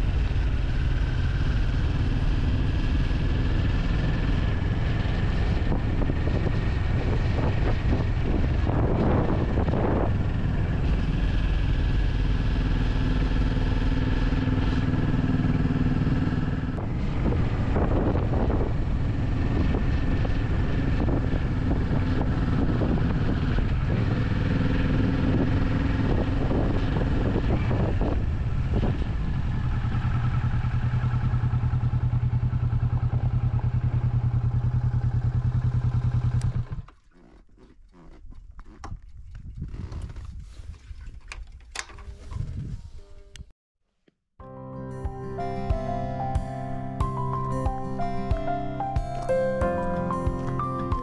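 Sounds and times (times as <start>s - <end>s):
motorcycle engine running: 0.0s - 36.9s.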